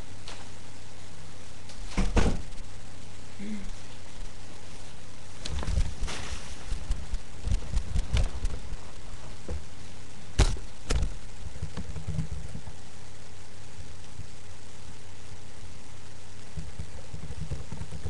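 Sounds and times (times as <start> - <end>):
steady hiss: 0.0 - 18.0
rustling: 3.8 - 10.1.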